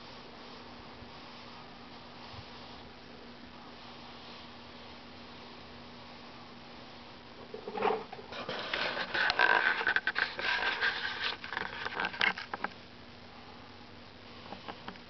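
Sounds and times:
handling scrapes and clicks: 7.5s - 12.7s.

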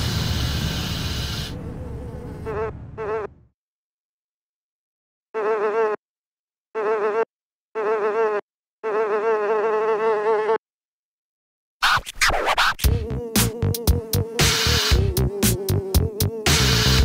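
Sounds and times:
cartoon buzzing: 11.8s - 17.0s.

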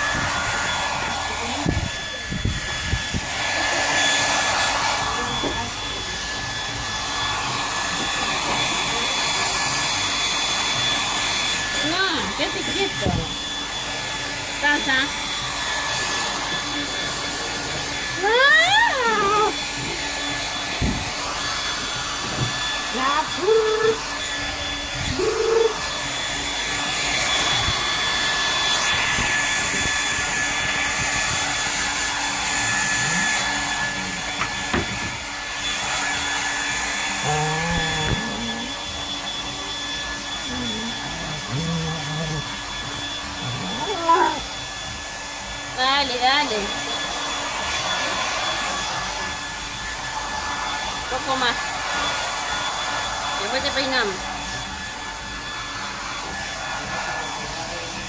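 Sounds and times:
hair dryer blowing: 0.0s - 58.0s
voice-like sounds: 37.2s - 38.8s, 40.5s - 42.5s.

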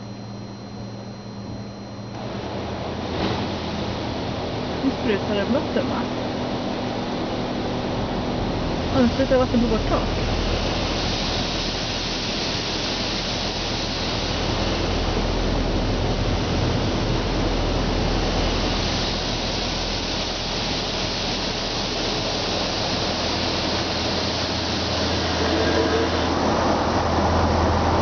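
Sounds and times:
low machine hum: 0.0s - 28.0s
water spraying on car roof: 9.8s - 27.8s.

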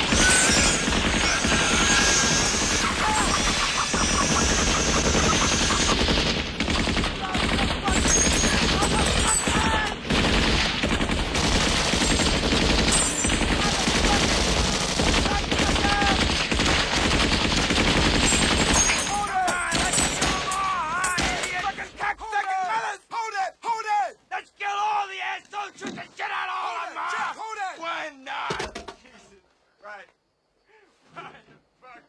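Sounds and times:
machine gun fire: 0.0s - 20.6s.

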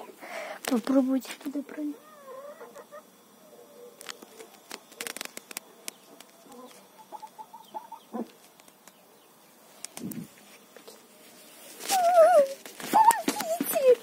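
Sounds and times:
wavering animal call: 2.0s - 4.0s.

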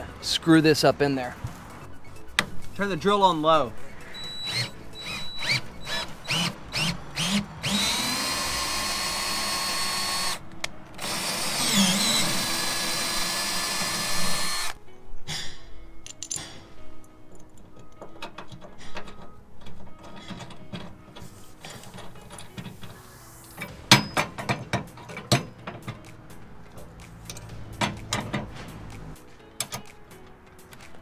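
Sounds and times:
background music: 0.0s - 31.0s
metal bolt hardware clinking: 16.0s - 23.0s, 23.6s - 28.6s.

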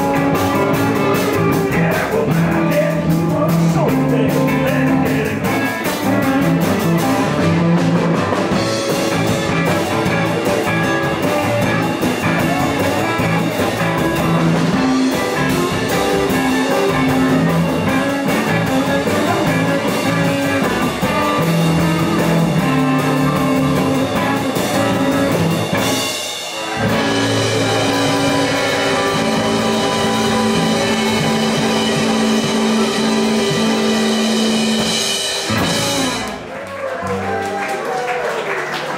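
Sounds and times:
electric blues band playing: 0.0s - 38.9s
harmonica: 26.6s - 34.9s.

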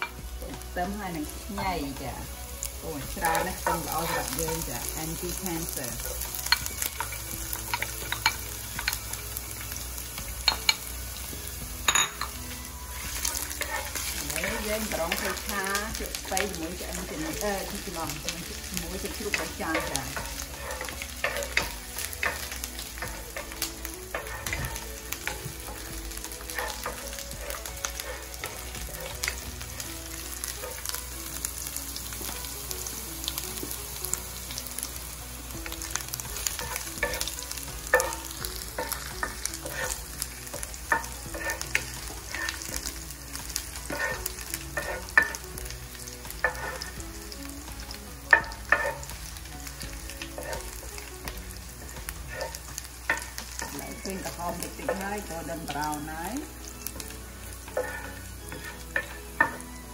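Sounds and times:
food frying in oil: 0.0s - 59.9s
garlic sizzling in hot oil: 0.0s - 59.9s
spatula scraping a pan: 3.1s - 9.7s, 12.2s - 31.7s, 35.6s - 59.9s
spatula knocking on pan: 48.3s - 49.1s.

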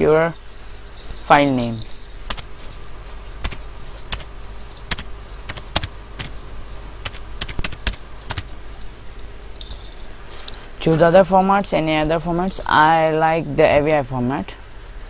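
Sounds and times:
steady low hum: 0.0s - 15.0s
keyboard keys clicking: 3.4s - 6.4s, 7.0s - 8.5s.

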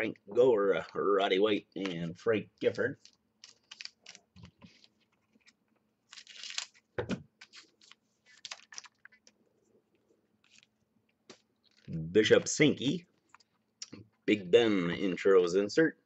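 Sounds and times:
cards clicking and rustling: 2.6s - 9.4s, 10.4s - 10.7s
foil wrapper crinkling: 2.7s - 4.9s, 6.1s - 6.8s, 7.4s - 9.3s.

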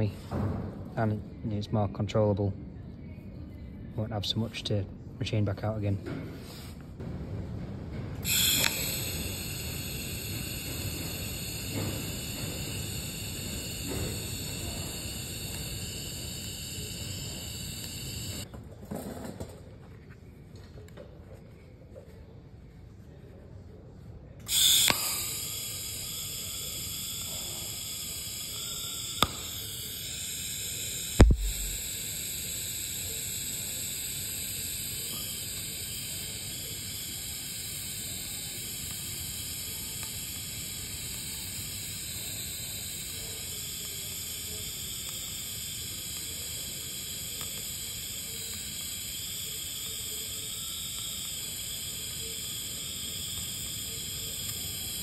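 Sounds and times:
sharp clicks: 8.2s - 18.5s, 24.5s - 55.0s
welding arc hissing: 8.2s - 18.5s, 24.4s - 55.0s.

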